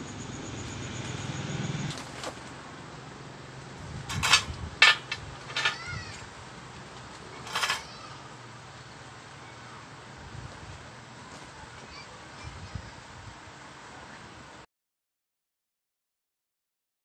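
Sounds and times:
low steady hum: 0:00.0 - 0:05.2.

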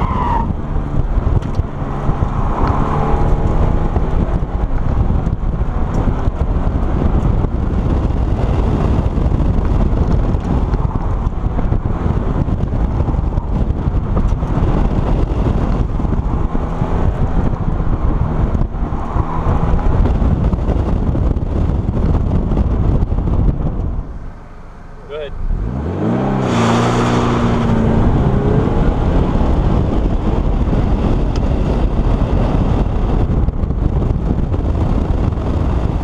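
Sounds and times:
car engine driven hard: 0:00.0 - 0:36.0
wind buffeting on microphone: 0:00.0 - 0:36.0.

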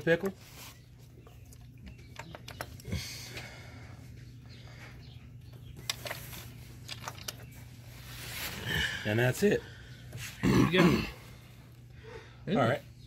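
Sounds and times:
steady low hum: 0:00.0 - 0:13.0
small clicks and knocks: 0:01.5 - 0:02.9, 0:05.5 - 0:07.5.

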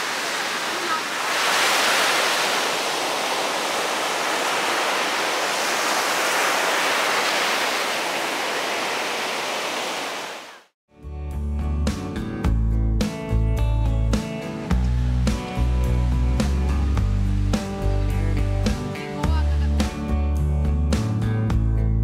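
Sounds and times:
waves breaking on beach: 0:00.0 - 0:10.8.

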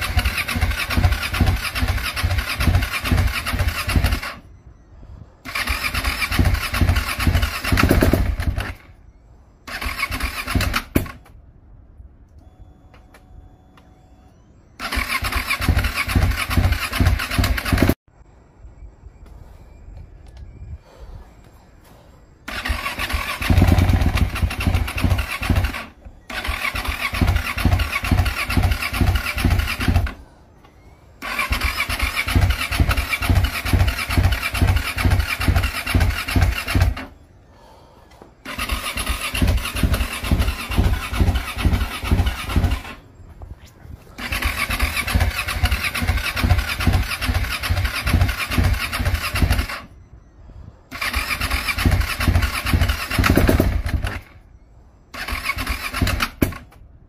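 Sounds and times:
motorcycle engine cranking: 0:00.0 - 0:04.4, 0:05.5 - 0:08.9, 0:09.7 - 0:11.3, 0:14.8 - 0:18.0, 0:22.5 - 0:30.2, 0:31.2 - 0:37.2, 0:38.4 - 0:43.0, 0:44.2 - 0:49.9, 0:50.9 - 0:54.4, 0:55.1 - 0:56.8.

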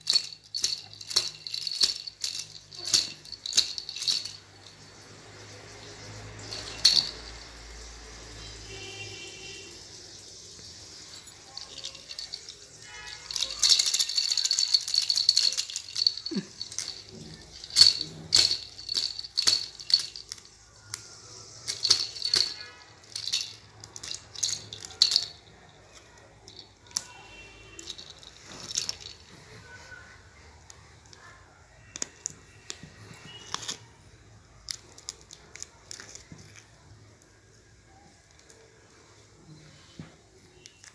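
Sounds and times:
plastic baby rattle shaking: 0:00.0 - 0:05.1, 0:05.7 - 0:07.6, 0:11.0 - 0:29.6, 0:34.6 - 0:36.7.

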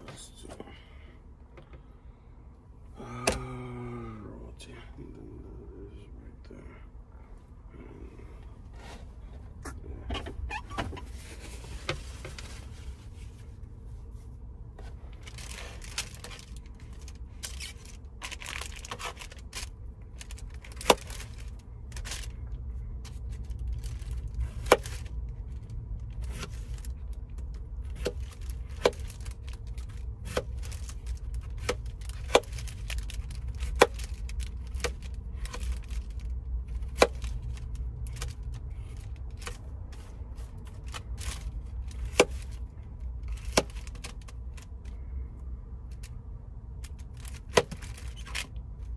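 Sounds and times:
steady low hum: 0:00.0 - 0:48.9
rustling: 0:10.2 - 0:45.1.

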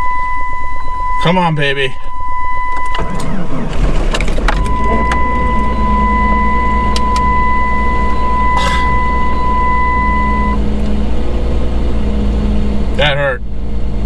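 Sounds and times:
car engine idling: 0:02.8 - 0:14.0.

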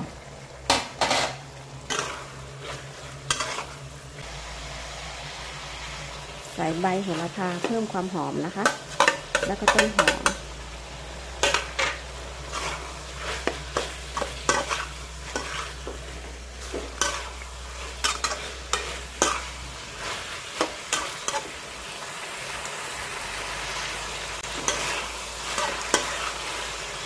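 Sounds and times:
food sizzling: 0:00.0 - 0:27.0
metal spatula clanking on wok: 0:11.4 - 0:12.0.

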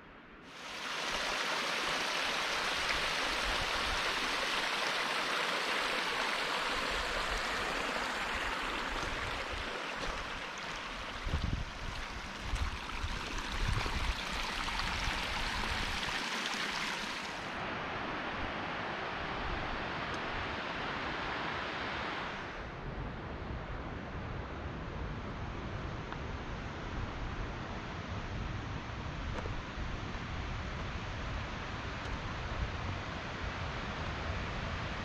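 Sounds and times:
mountain stream rushing: 0:00.5 - 0:22.7.

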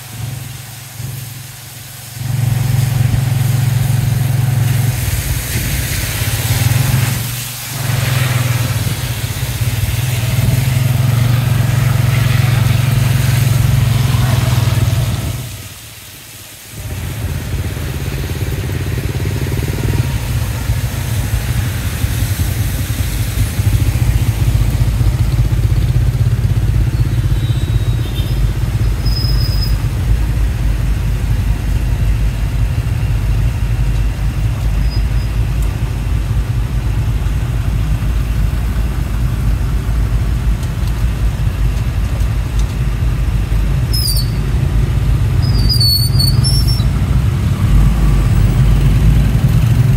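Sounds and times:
motorcycle engine rumble: 0:00.0 - 0:15.7, 0:16.8 - 0:49.9
traffic on wet street: 0:00.0 - 0:49.9
short high squeal: 0:26.9 - 0:29.9, 0:43.9 - 0:44.5, 0:45.4 - 0:47.0.

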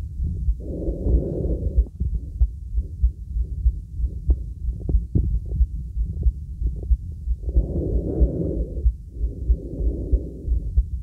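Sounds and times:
breathing: 0:00.4 - 0:02.2, 0:07.4 - 0:11.0.

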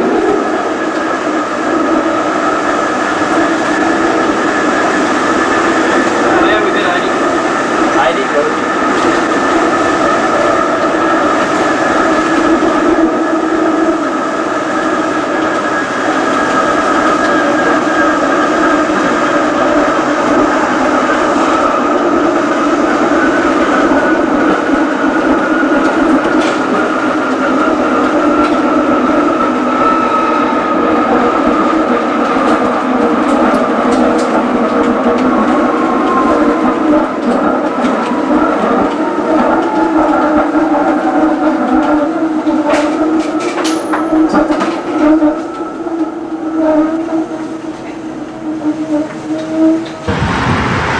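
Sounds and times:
tram motor whine: 0:00.0 - 0:50.9
wheels rumbling on rails: 0:00.0 - 0:50.9.

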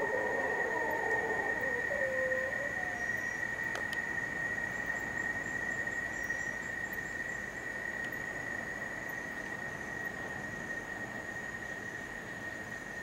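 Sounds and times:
distant howler monkeys roaring: 0:00.0 - 0:03.7
high-pitched insect drone: 0:00.0 - 0:13.0.

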